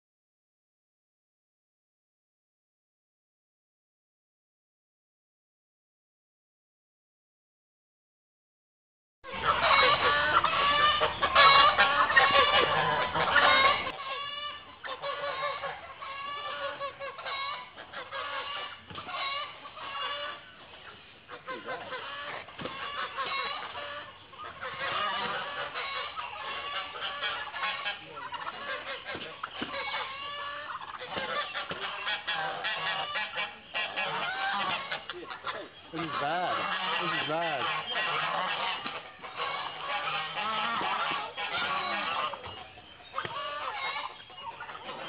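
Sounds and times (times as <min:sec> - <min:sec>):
geese honking: 0:09.3 - 0:45.0.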